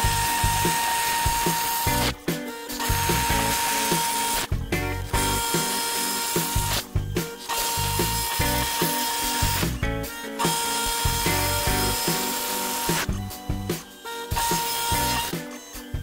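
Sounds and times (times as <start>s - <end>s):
background music with beat: 0.0s - 16.0s
router spindle chattering: 2.8s - 9.8s.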